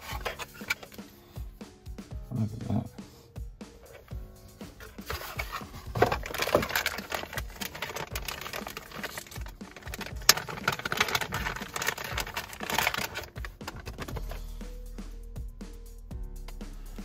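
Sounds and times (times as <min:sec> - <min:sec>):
cardboard box being opened: 0:04.8 - 0:14.4
packaging crackles and taps: 0:04.8 - 0:14.4
plastic bag crinkling: 0:04.8 - 0:14.4.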